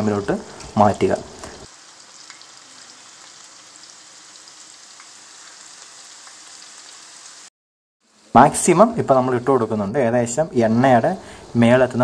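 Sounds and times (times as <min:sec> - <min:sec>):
deep-frying sizzle: 0:00.0 - 0:12.0
faint oil crackles: 0:00.3 - 0:07.4.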